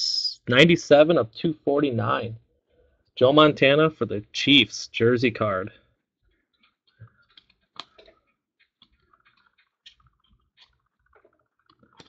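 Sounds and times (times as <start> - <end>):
trading cards clicking and rustling: 6.6 - 12.0.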